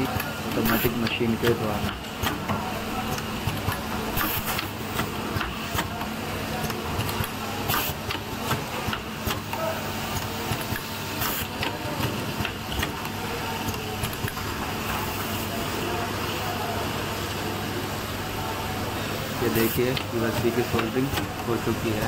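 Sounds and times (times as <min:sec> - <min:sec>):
sharp pneumatic clicks: 0:01.8 - 0:06.0, 0:06.6 - 0:14.4
short pneumatic hisses: 0:04.2 - 0:04.6.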